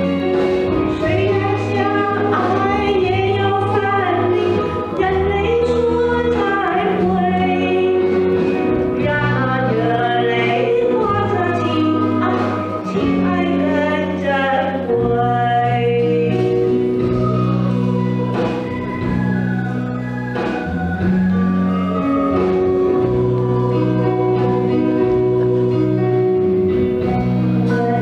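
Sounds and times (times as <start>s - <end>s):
live band accompaniment: 0.0s - 28.0s
woman singing pop ballad: 0.8s - 17.6s, 27.6s - 28.0s.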